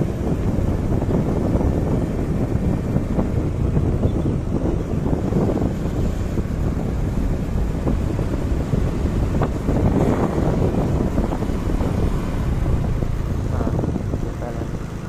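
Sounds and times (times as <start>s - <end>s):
vehicle running noise: 0.0s - 15.0s
wind buffeting microphone: 0.0s - 15.0s.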